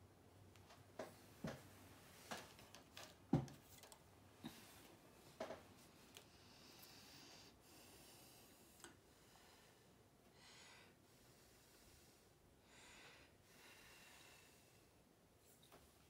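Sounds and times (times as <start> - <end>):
soft puffs of breath: 6.2 - 15.0.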